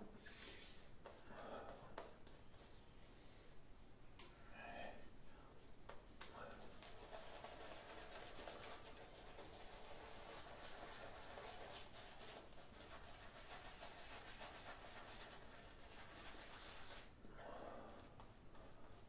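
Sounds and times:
shaving brush wet brushing: 0:06.6 - 0:17.1.

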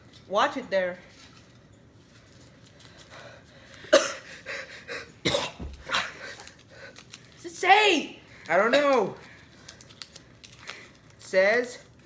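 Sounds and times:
person coughing: 0:03.8 - 0:06.4.

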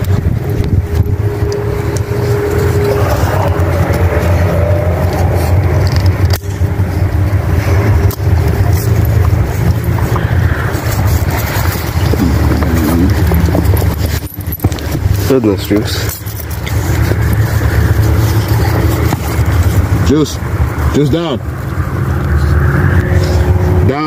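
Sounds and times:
low mechanical hum: 0:00.0 - 0:20.9
sharp metal clicks of chain: 0:08.0 - 0:20.4.

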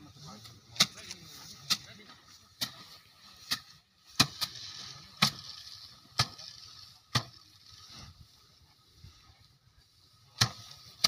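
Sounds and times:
rice stalks whacking wooden frame: 0:02.6 - 0:08.0.

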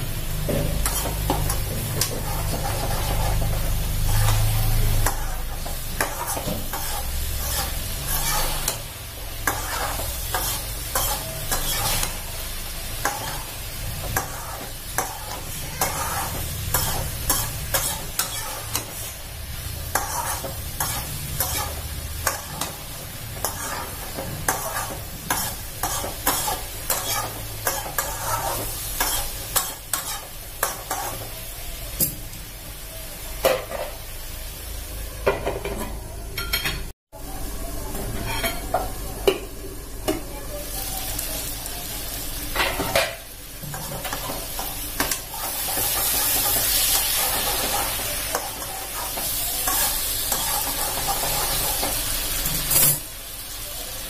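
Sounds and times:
vegetables sizzling in pan: 0:00.0 - 0:35.1, 0:37.2 - 0:54.0
spatula scraping pan: 0:00.7 - 0:12.3, 0:12.9 - 0:19.2, 0:19.8 - 0:31.3.

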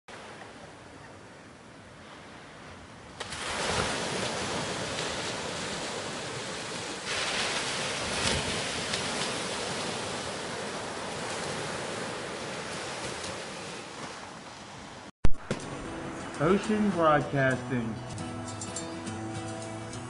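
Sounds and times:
ocean surf washing onto beach: 0:02.0 - 0:17.9.

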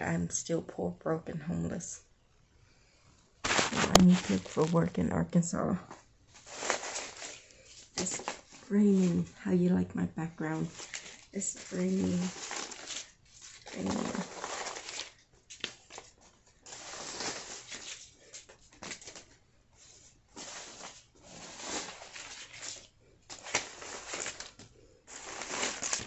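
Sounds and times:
paper bills rustling: 0:03.4 - 0:05.0, 0:06.4 - 0:09.3, 0:10.4 - 0:26.0.

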